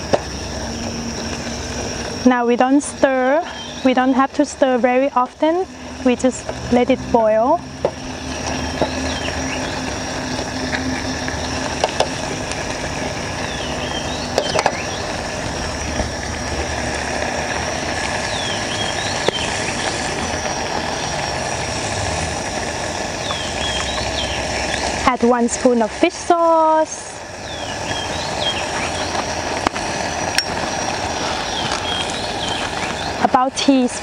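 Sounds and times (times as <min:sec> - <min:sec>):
gas stove hiss and rumble: 0:00.0 - 0:34.0
high insect whine: 0:00.0 - 0:34.0
faint bird chirps: 0:03.4 - 0:03.9.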